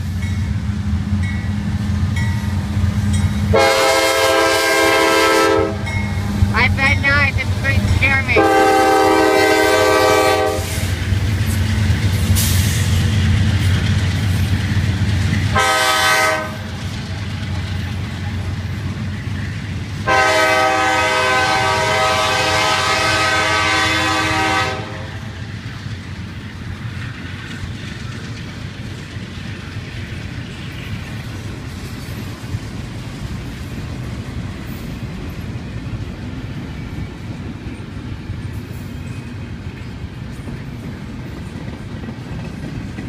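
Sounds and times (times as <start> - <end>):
train wheel clatter: 0.0 - 24.0, 25.2 - 43.0
locomotive engine rumble: 0.0 - 43.0
train air horn blasts: 3.5 - 6.0, 8.1 - 11.0, 15.5 - 16.7, 20.0 - 25.3.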